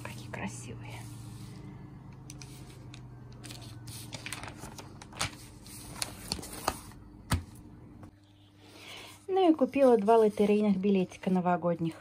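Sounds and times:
newspaper rustling and crinkling: 2.4 - 6.9
paper crackles: 2.4 - 6.9.

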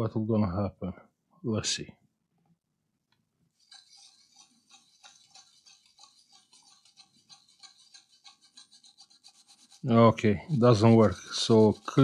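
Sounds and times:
small brush scrubbing: 3.5 - 12.0.

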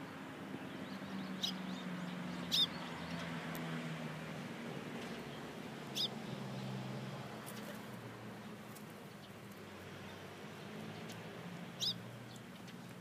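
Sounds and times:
high bird chirps: 0.9 - 2.9, 11.8 - 12.0.

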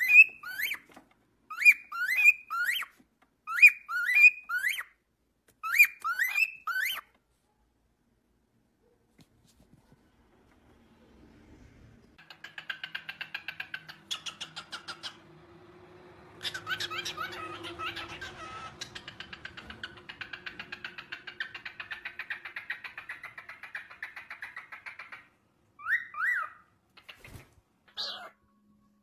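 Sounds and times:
cockatiels chattering: 12.2 - 15.3, 16.4 - 28.4.

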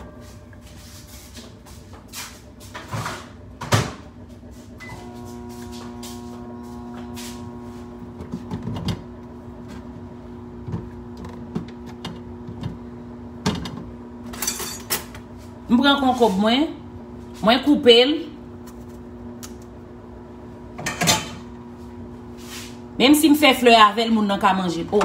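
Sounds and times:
appliance hum: 0.0 - 25.0
kitchen knocks and clatter: 2.8 - 4.1, 20.8 - 21.4.

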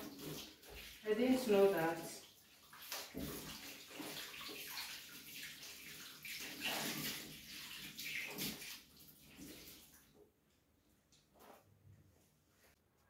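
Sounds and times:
splashing while scrubbing: 0.0 - 10.0.

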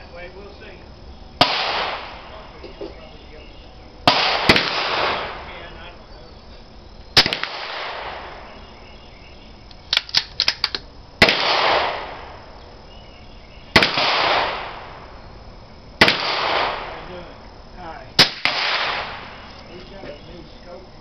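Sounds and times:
rifle shots with echo: 1.4 - 2.7, 4.0 - 5.8, 7.2 - 8.8, 9.9 - 12.6, 13.7 - 15.2, 16.0 - 17.3, 18.2 - 19.5
small clicks: 9.7 - 10.8.

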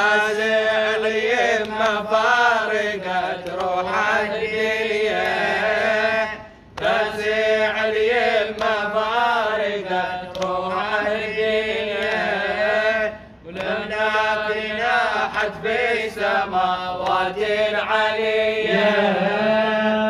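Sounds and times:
man chanting: 7.0 - 20.0.

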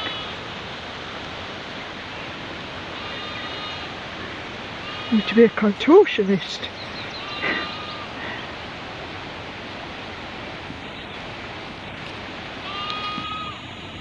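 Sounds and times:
short high calls: 12.6 - 13.7.

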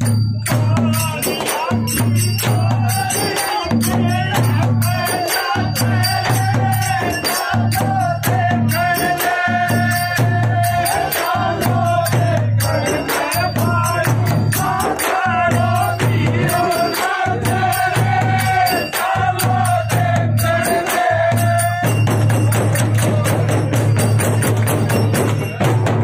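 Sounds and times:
frame drums beating: 0.0 - 26.0
men singing together: 0.0 - 26.0.

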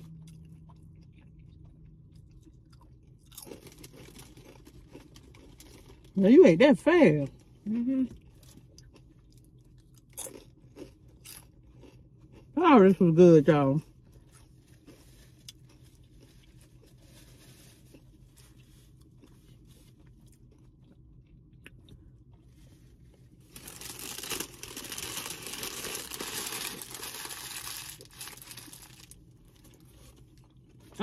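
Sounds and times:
faint chewing: 8.1 - 12.5, 14.2 - 23.3
paper napkin crumpling: 23.5 - 29.2.

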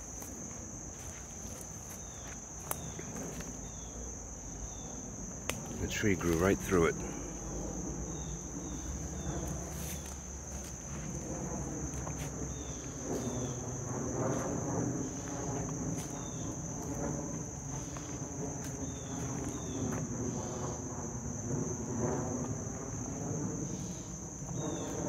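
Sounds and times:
footsteps crunching through dry leaves: 0.0 - 3.8, 5.8 - 6.9, 8.8 - 20.1
high-pitched insect drone: 0.0 - 25.0.

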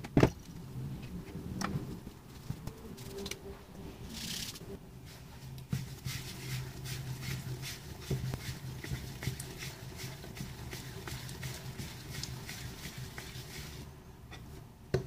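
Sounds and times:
hands rolling dough on countertop: 5.0 - 15.0.

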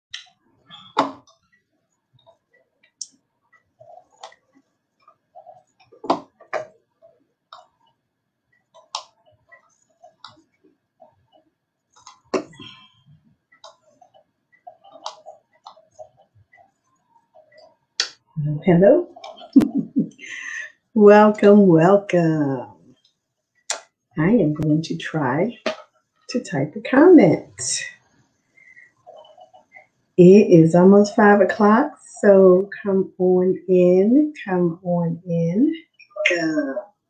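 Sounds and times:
keyboard and mouse clicks: 8.7 - 10.5.

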